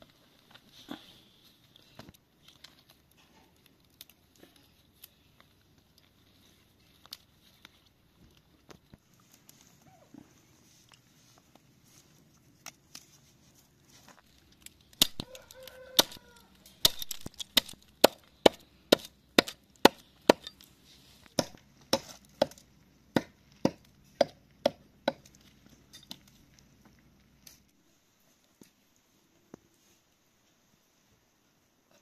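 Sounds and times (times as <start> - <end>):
hatchet chopping plant stems: 14.6 - 25.4.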